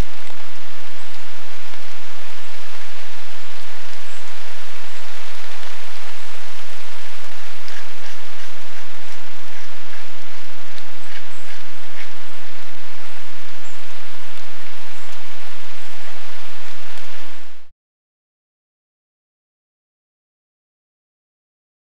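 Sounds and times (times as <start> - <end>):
steady hiss: 0.0 - 17.7.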